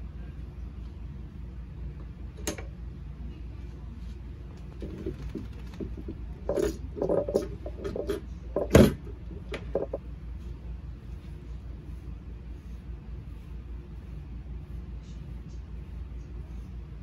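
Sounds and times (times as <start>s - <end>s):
low hum: 0.0s - 17.0s
knocks and clatters: 4.8s - 10.0s.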